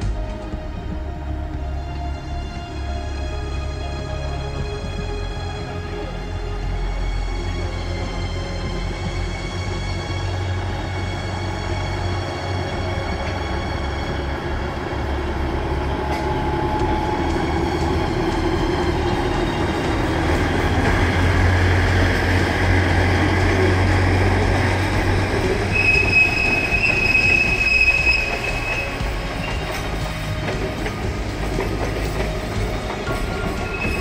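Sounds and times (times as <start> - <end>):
diesel locomotive engine drone: 0.0 - 34.0
train wheels rolling on rails: 0.0 - 34.0
high wheel squeal: 25.5 - 30.2, 33.0 - 34.0.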